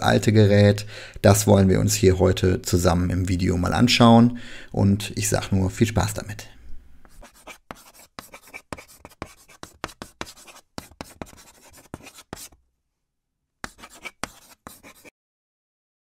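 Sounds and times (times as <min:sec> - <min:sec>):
chalk scratching on blackboard: 0:07.1 - 0:12.6, 0:13.6 - 0:15.1.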